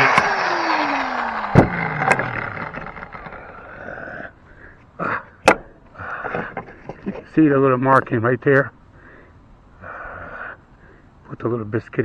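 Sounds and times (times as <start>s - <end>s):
power tool motor winding down: 0.0s - 4.3s
sharp knocks: 5.4s - 7.0s.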